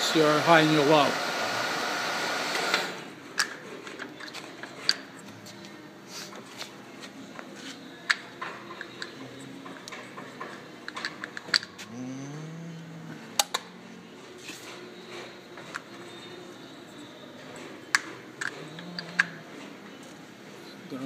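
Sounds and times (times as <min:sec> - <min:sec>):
milling machine running: 0:00.0 - 0:03.0
faint hum: 0:11.8 - 0:17.4.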